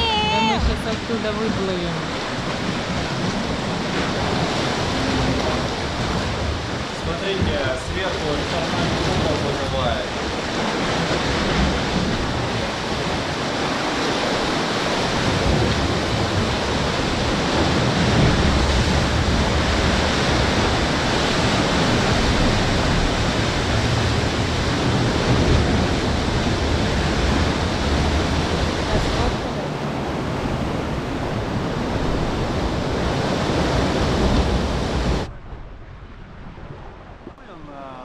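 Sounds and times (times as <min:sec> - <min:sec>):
heavy low rumble: 0:00.0 - 0:13.8, 0:14.4 - 0:38.0
surf breaking against rocks: 0:00.0 - 0:37.8.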